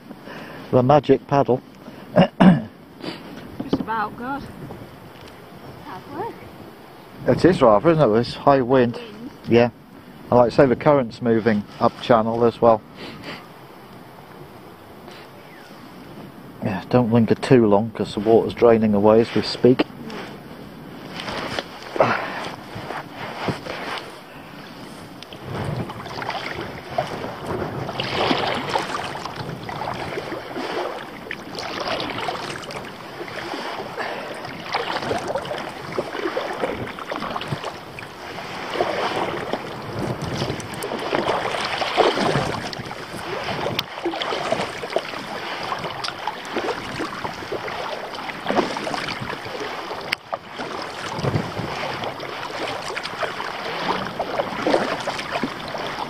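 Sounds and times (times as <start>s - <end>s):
paddle strokes splashing water: 2.9s - 14.4s, 17.1s - 56.0s
wind on microphone: 3.4s - 12.3s, 15.4s - 56.0s.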